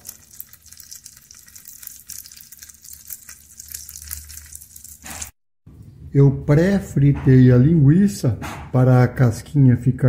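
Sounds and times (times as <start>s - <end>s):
sausage sizzling in a pot: 0.0s - 5.4s.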